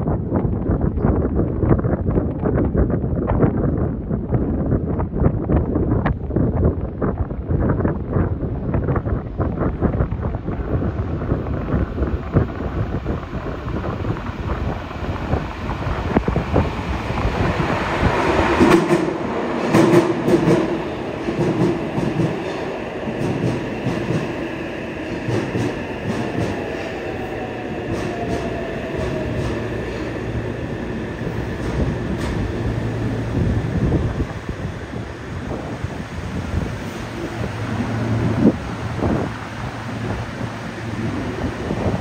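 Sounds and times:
rush of train wheels and air: 0:00.0 - 0:42.0
rail joints clicking: 0:11.5 - 0:42.0.

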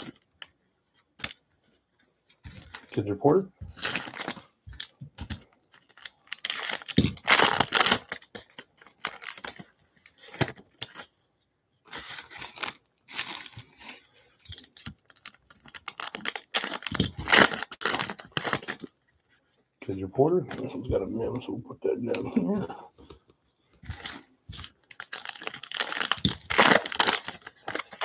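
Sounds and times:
foil wrappers tearing and crinkling: 0:03.8 - 0:04.4, 0:05.8 - 0:11.1, 0:11.9 - 0:18.9, 0:23.9 - 0:28.0.

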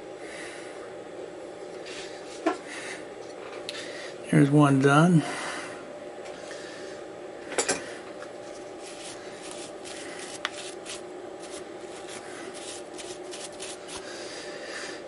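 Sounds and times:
steady machine hum: 0:00.0 - 0:15.0
brush sweeping metal chips: 0:08.8 - 0:14.0.

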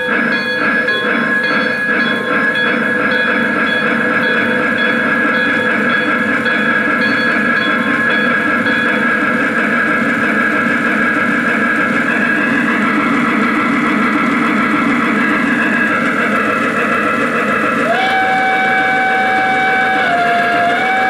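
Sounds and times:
steam hiss and rumble: 0:00.0 - 0:21.0
hooter whistle: 0:17.8 - 0:21.0.

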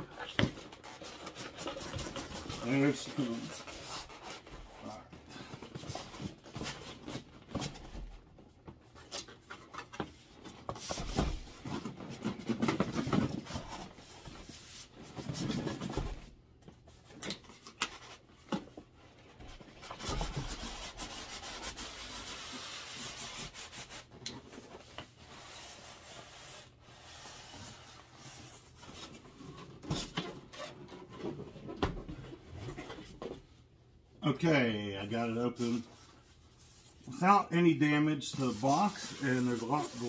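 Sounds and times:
styrofoam scraping cardboard box: 0:38.4 - 0:40.0.

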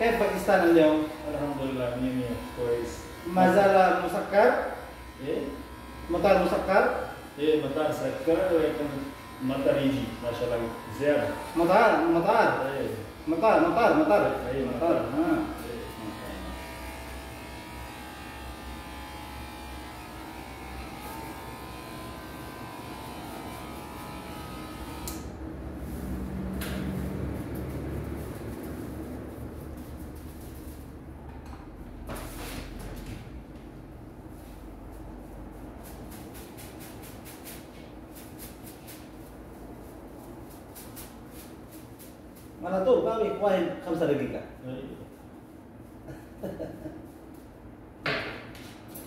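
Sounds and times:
hair clipper buzzing: 0:00.0 - 0:25.4
scissors snipping hair: 0:24.5 - 0:25.3.

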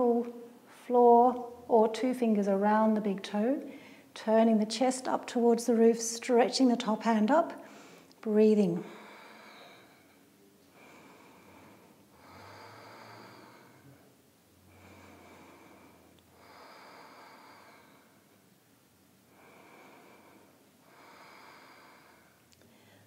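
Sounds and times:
person breathing through throat: 0:08.9 - 0:10.2, 0:10.8 - 0:14.1.

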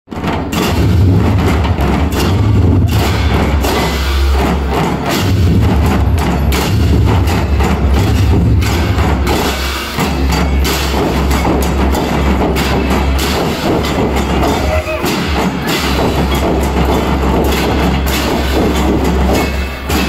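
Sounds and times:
massed drums playing: 0:00.1 - 0:20.0
crashing cymbals: 0:00.5 - 0:20.0.

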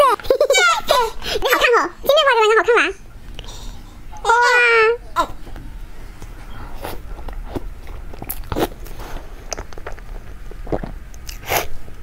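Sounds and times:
wet chewing and lip-smacking: 0:06.8 - 0:12.0.

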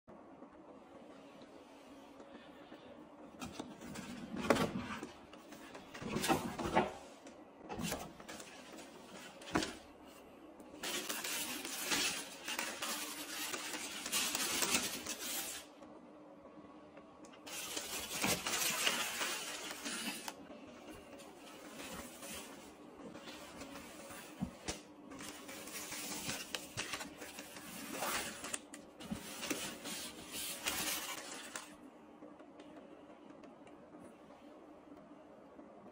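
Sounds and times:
tissue paper rustling and crinkling: 0:10.8 - 0:15.7, 0:17.5 - 0:20.4, 0:21.4 - 0:31.8.

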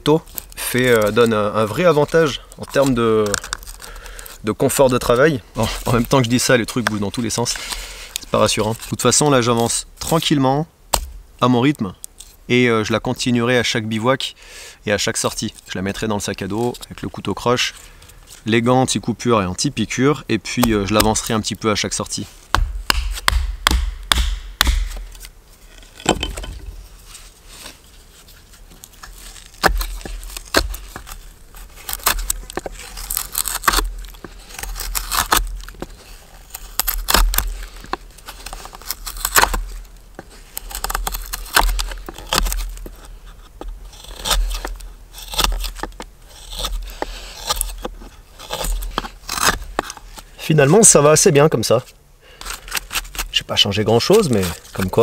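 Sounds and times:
knife scraping wood: 0:05.0 - 0:09.8, 0:20.6 - 0:50.9, 0:52.3 - 0:55.0.

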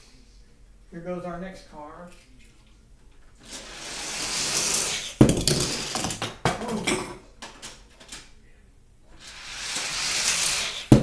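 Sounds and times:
toy car rolling on plastic track: 0:03.5 - 0:06.1, 0:09.2 - 0:10.9.

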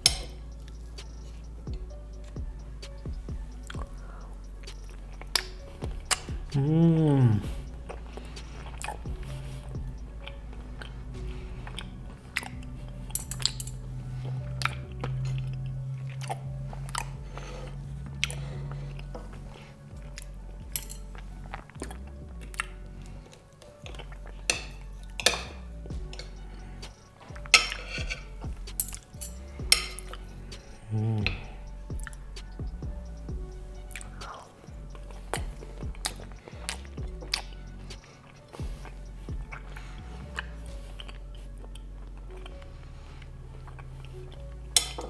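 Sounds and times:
soft music: 0:00.0 - 0:45.0
crunching and chewing: 0:07.8 - 0:32.2, 0:33.8 - 0:45.0.

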